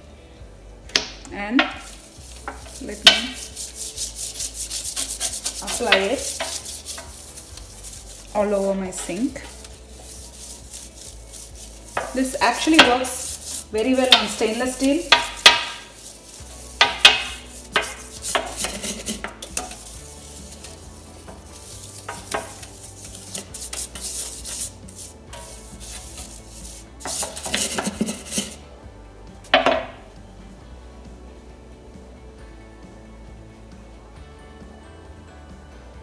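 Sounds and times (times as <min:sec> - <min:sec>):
brush scrubbing enamel sink: 0:01.6 - 0:28.6.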